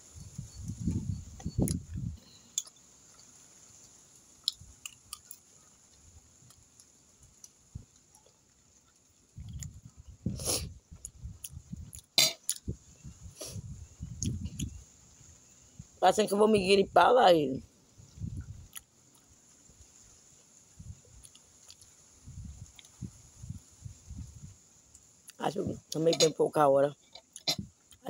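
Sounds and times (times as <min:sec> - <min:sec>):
person chewing: 0:01.6 - 0:03.3, 0:04.4 - 0:12.7, 0:14.2 - 0:14.8, 0:18.6 - 0:19.3, 0:21.1 - 0:22.0, 0:27.1 - 0:28.0.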